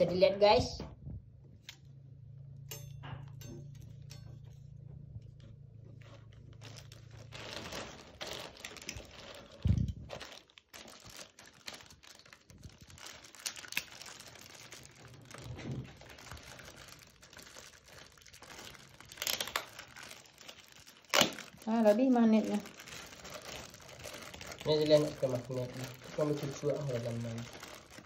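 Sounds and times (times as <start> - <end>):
plastic bags crinkling: 5.9 - 28.0.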